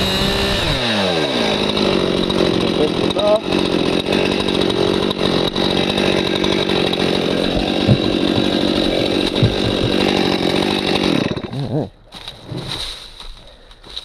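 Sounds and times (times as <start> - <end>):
chainsaw cutting log: 0.0 - 13.3
dull knocks: 7.2 - 10.6.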